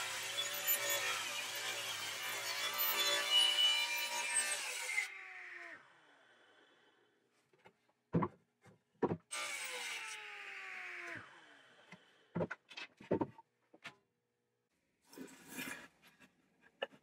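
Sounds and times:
table saw spinning down whine: 4.4 - 6.8, 9.4 - 12.3.

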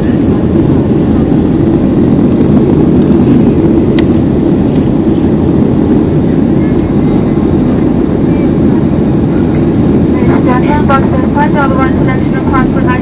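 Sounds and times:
airliner cabin engine rumble: 0.0 - 13.0.

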